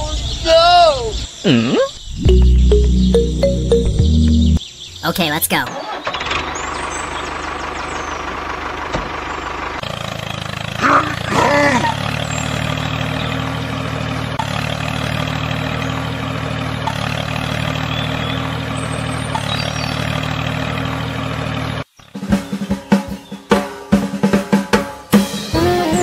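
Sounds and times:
tractor engine running: 2.3 - 21.9.

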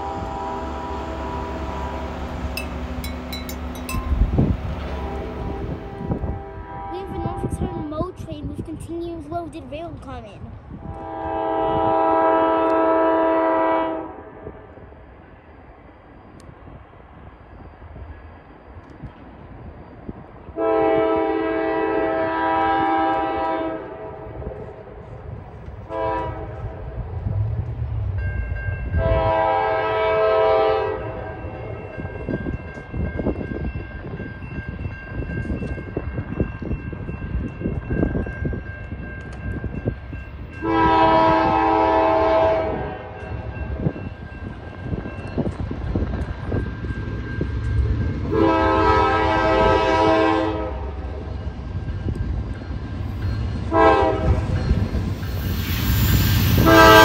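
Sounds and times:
diesel locomotive horn blasts: 0.0 - 7.8, 10.8 - 14.6, 20.6 - 24.3, 25.8 - 26.8, 28.9 - 31.6, 40.5 - 43.4, 48.2 - 51.1, 53.7 - 54.7, 56.5 - 57.0
low rumble of train: 0.0 - 57.0.

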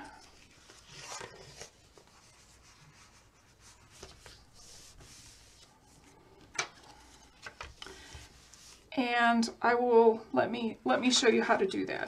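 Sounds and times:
paper rustling: 0.0 - 8.8.

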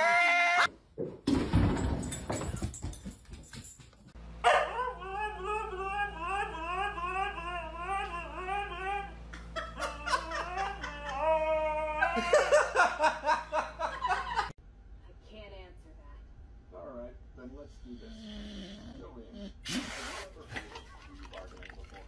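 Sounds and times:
person laughing: 4.8 - 14.5.

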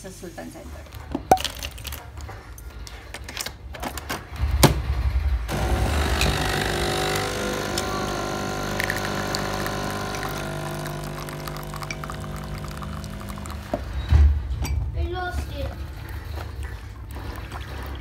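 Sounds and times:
coffee machine pump humming: 5.5 - 14.2.

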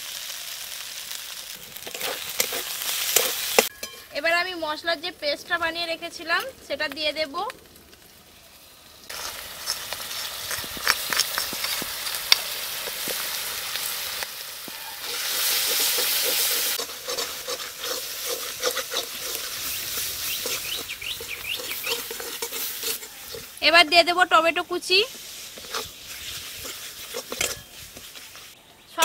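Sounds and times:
spice paste sizzling in oil: 0.0 - 28.6
spatula scraping metal pan: 1.8 - 4.2, 14.7 - 23.9, 25.1 - 28.6.

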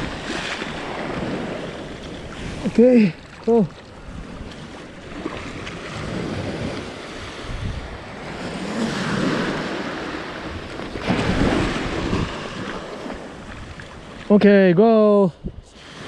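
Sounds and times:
small waves breaking on beach: 0.0 - 16.0
wind on microphone: 3.9 - 14.3, 15.3 - 16.0.

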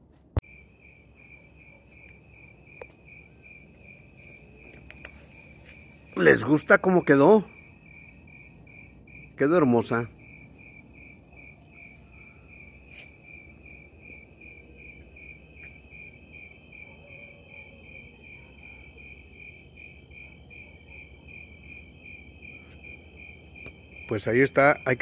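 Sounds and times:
cricket chirping: 0.4 - 25.0.

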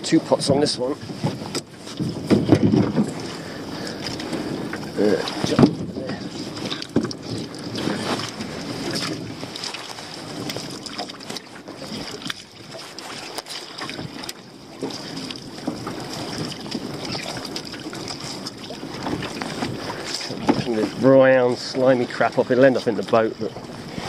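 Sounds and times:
wind noise on microphone: 0.0 - 24.0
rope knocking into boat: 1.2 - 3.2.

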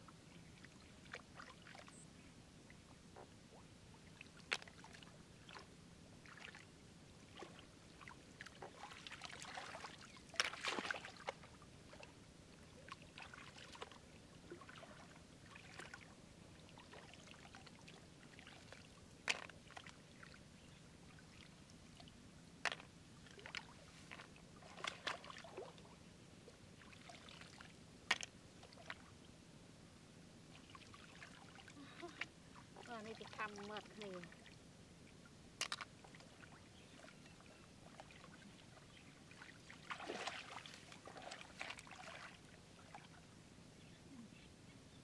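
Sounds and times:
hands splashing in muddy water: 8.8 - 11.4, 39.8 - 42.4.

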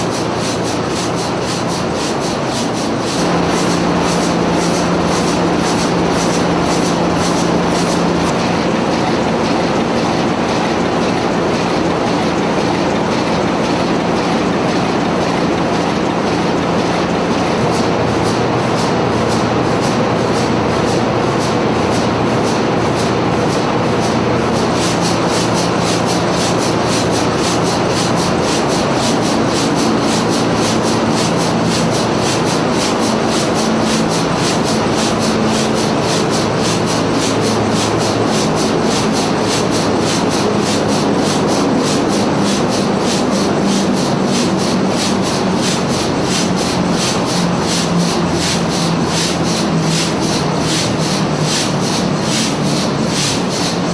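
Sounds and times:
diesel engine clattering: 0.0 - 53.9.

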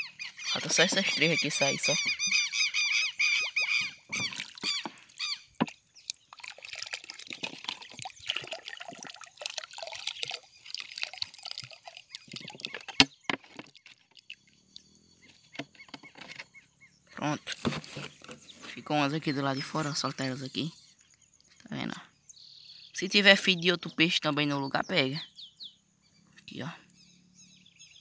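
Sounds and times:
water sloshing and dripping in bottle: 0.5 - 16.6, 17.2 - 20.3.

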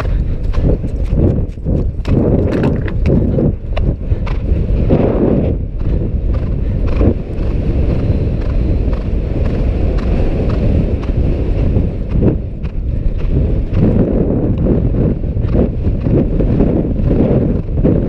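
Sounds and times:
hoofbeats on turf: 0.0 - 18.0
wind buffeting microphone: 0.0 - 18.0.

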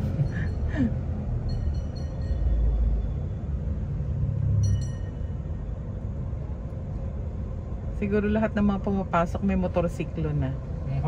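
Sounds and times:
vehicle road and engine rumble: 0.0 - 11.0.

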